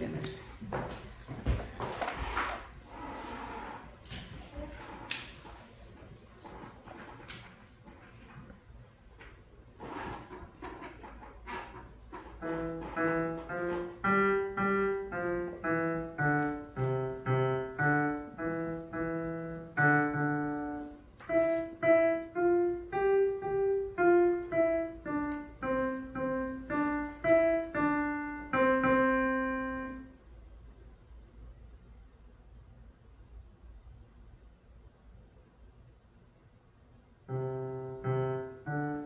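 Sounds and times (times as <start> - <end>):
piano piece: 12.2 - 30.2, 37.2 - 39.0.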